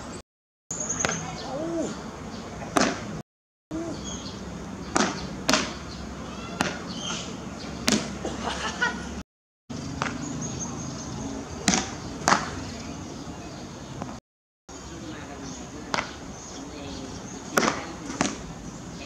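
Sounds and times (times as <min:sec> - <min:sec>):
paddle striking ball: 0:04.9 - 0:05.8.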